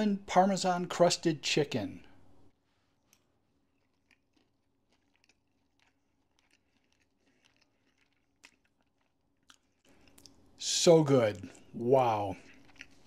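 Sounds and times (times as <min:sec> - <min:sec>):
faint chewing: 0:02.7 - 0:13.0
crunches of breading: 0:02.9 - 0:13.0.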